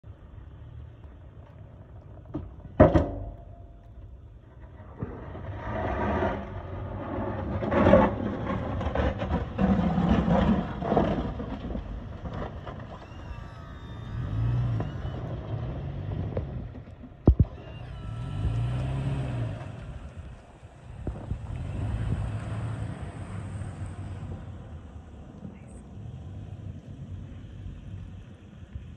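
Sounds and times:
sharp clunk: 2.8s - 3.8s
plow scraping snow: 4.4s - 28.8s
pickup truck engine running: 8.8s - 28.9s.

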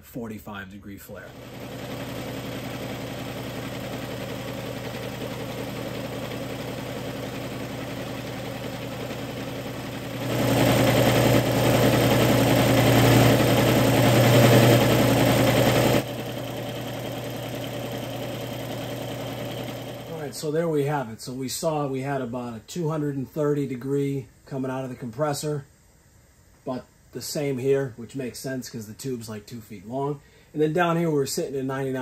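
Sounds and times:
air compressor humming: 1.2s - 20.6s.

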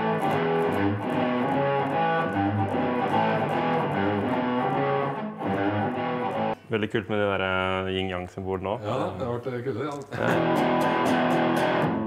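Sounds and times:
electric guitar melodic run: 0.0s - 6.7s, 10.2s - 12.0s.

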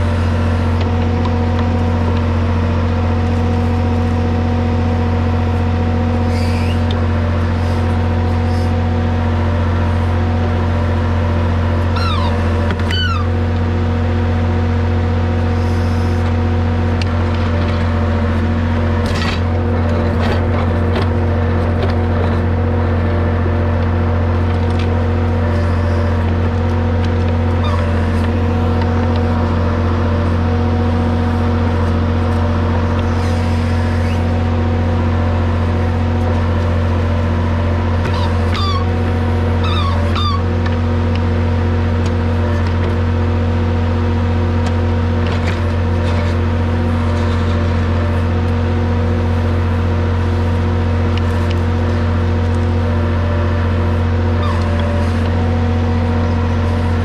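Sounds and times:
tractor diesel engine running: 0.0s - 57.0s
high squeaks: 11.9s - 13.3s, 27.6s - 28.2s, 38.1s - 38.9s, 39.6s - 40.5s, 54.4s - 54.8s.

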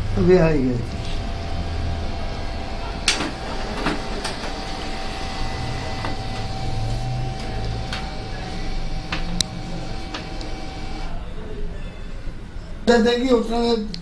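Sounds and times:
printer motor hum and whine: 0.0s - 11.2s.

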